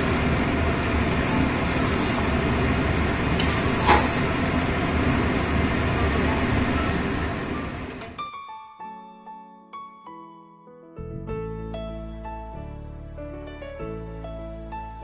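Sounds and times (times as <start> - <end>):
spatula stirring thick food: 0.0 - 6.5
low rumbling background: 0.0 - 8.1
soft piano music: 5.2 - 15.0.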